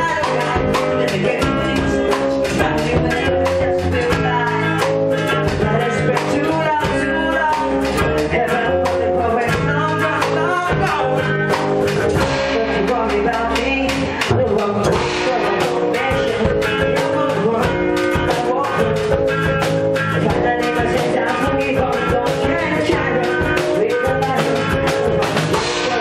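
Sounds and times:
drum kit beat: 0:00.0 - 0:26.0
electric guitars: 0:00.0 - 0:26.0
person singing: 0:00.0 - 0:26.0.

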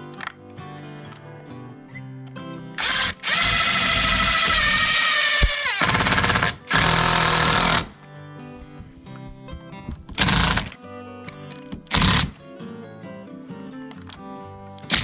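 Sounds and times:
quiet guitar music: 0:00.0 - 0:05.0, 0:06.1 - 0:15.0
cordless drill driving a screw: 0:02.8 - 0:08.0, 0:10.2 - 0:10.7, 0:11.9 - 0:12.4.

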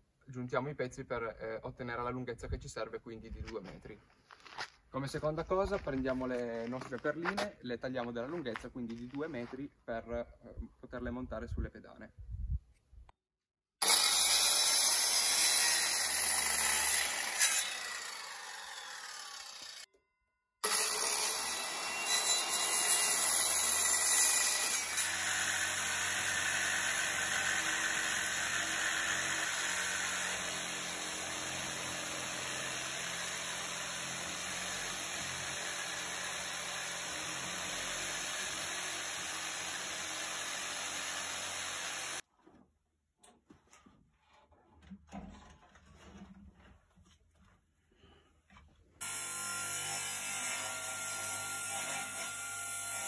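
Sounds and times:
circular saw cutting wood: 0:13.8 - 0:19.9, 0:20.6 - 0:42.2, 0:49.0 - 0:53.0
power tool drone: 0:34.3 - 0:42.2, 0:49.0 - 0:50.8.

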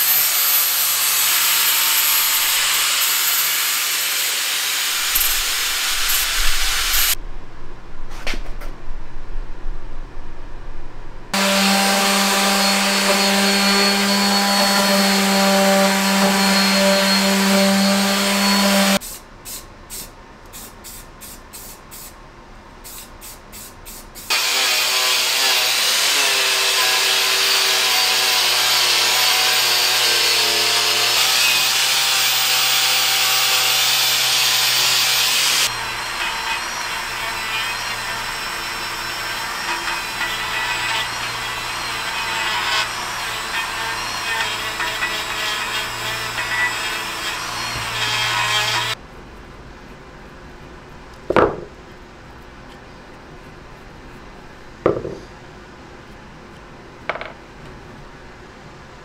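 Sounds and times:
angle grinder grinding metal: 0:00.0 - 0:07.2, 0:11.4 - 0:19.0, 0:24.3 - 0:49.0
drill spinning wire brush: 0:00.0 - 0:07.2, 0:11.4 - 0:19.0, 0:24.3 - 0:49.0
orbital sander humming: 0:11.4 - 0:19.0, 0:24.3 - 0:34.2.

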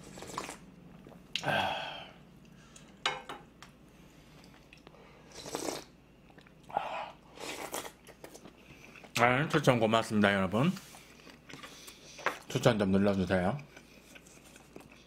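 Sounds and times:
man slurping and chewing: 0:00.0 - 0:01.2, 0:05.3 - 0:06.5, 0:07.3 - 0:09.1.

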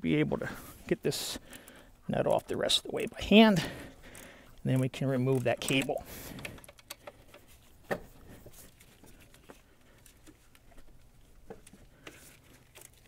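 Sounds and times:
light clicks of wrench on nut: 0:04.1 - 0:07.4.

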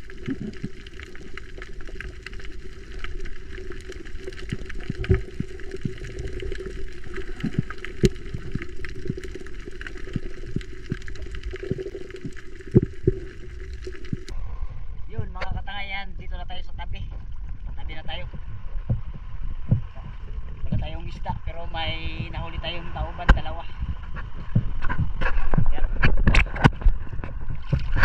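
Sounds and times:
sharp clicks and crackles: 0:00.0 - 0:14.4, 0:24.0 - 0:28.0
low underwater hum: 0:00.0 - 0:28.0
underwater knocks: 0:17.1 - 0:21.0, 0:23.2 - 0:28.0.

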